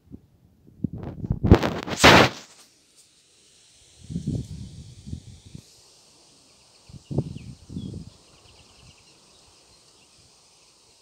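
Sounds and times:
steady high hiss: 1.4s - 11.0s
bird chirps: 6.4s - 10.8s.

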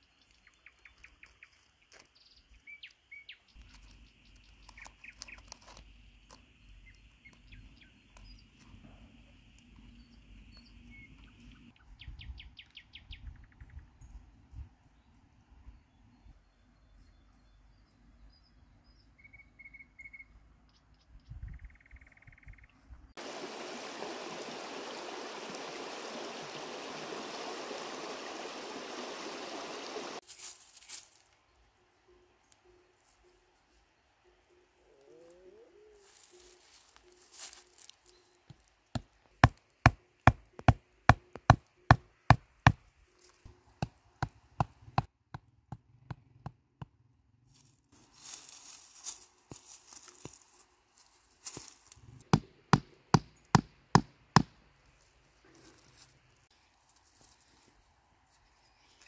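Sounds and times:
steady rushing hiss: 23.2s - 30.2s.

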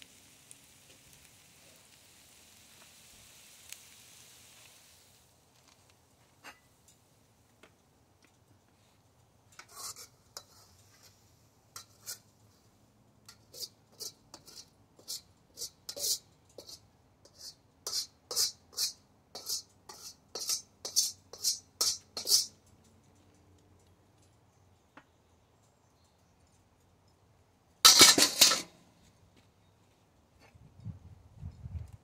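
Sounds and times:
metal spatula scraping a wok: 9.6s - 12.7s, 13.3s - 22.6s, 27.8s - 28.8s.

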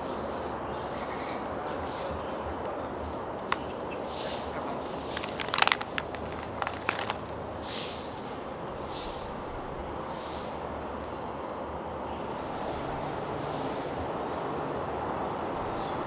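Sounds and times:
steady background noise: 0.0s - 16.0s
plastic rustling: 4.9s - 7.4s
plastic snack bag crinkling: 4.9s - 7.4s.

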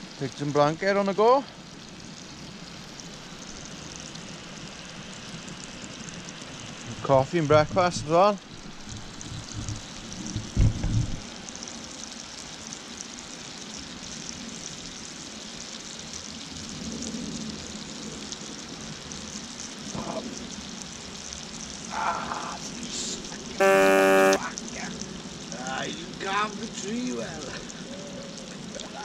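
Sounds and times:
sausages sizzling in a pan: 0.0s - 24.4s, 25.2s - 29.0s
loud buzzing tone: 23.6s - 24.4s.

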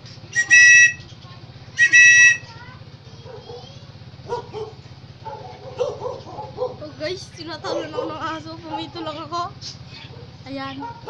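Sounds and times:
shrill plastic whistle blasts: 0.4s - 1.0s, 1.8s - 2.5s
dog barking: 3.2s - 6.9s, 7.6s - 9.2s, 10.0s - 11.0s.

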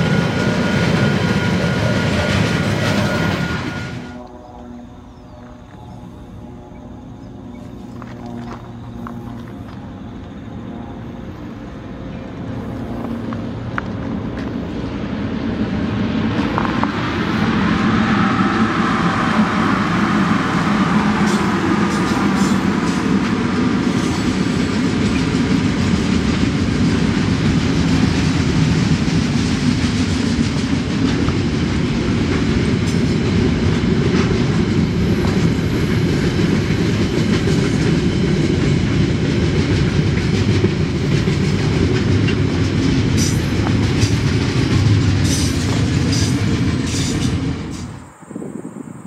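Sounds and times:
clickety-clack over rail joints: 0.0s - 4.4s, 12.9s - 18.1s, 18.8s - 48.1s
train wheels rumbling on rails: 0.0s - 49.0s.

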